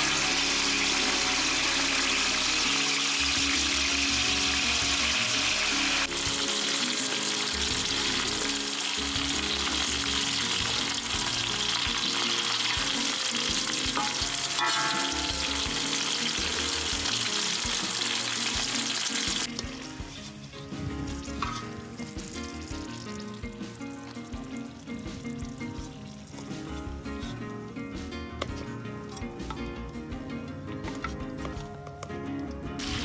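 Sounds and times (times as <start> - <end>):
deep-frying sizzle in oil: 0.0 - 27.4, 32.8 - 33.0.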